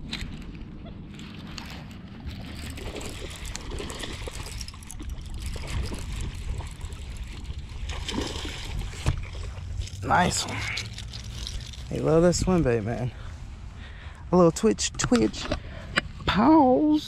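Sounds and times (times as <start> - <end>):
wind rumbling on microphone: 0.0 - 16.4
water splashing: 1.3 - 13.2.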